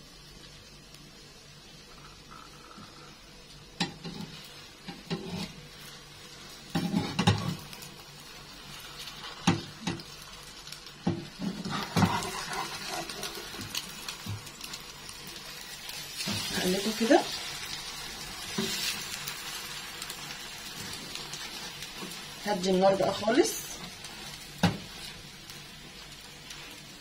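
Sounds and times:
faint sizzle: 0.0 - 27.0
metal spatula scraping a frying pan: 3.8 - 5.6, 6.7 - 7.6, 11.4 - 13.6.

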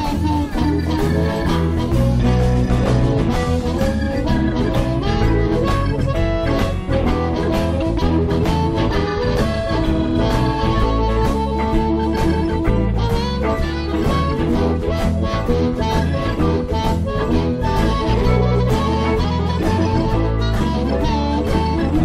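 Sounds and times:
live blues band playing: 0.0 - 22.0.

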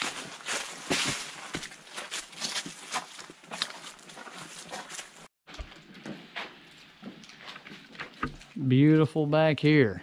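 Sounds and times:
footsteps crunching on dry leaves: 0.0 - 5.3.

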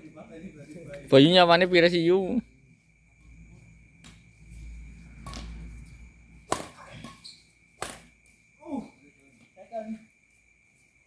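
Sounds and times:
racket hitting shuttlecock: 5.2 - 5.6, 6.4 - 7.2, 7.8 - 8.1.

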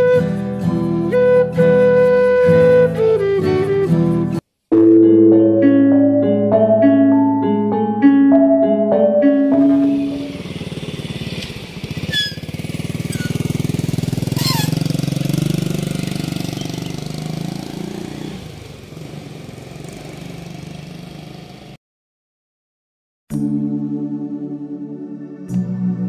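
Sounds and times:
motorcycle engine passing by: 9.4 - 21.8.

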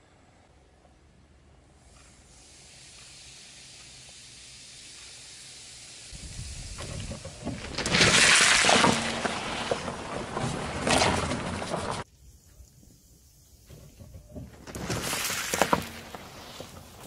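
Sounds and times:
car tyre rolling rumble: 6.2 - 12.1.

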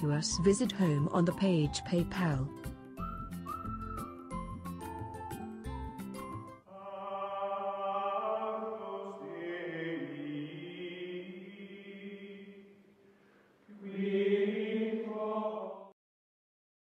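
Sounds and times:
chant-like sung tones: 6.7 - 12.8, 13.7 - 16.0.

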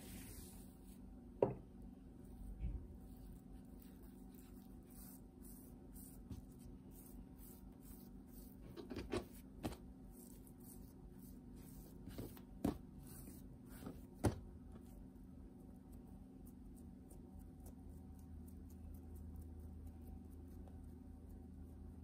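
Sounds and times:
faint steady hum: 0.0 - 22.0
dough knocking on cutting board: 1.4 - 1.6.

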